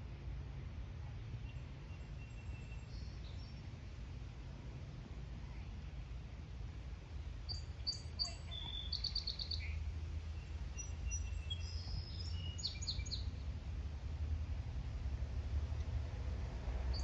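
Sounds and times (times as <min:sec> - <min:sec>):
small birds chirping: 0:01.3 - 0:03.8, 0:07.4 - 0:13.5
steady low rumble: 0:09.5 - 0:17.0.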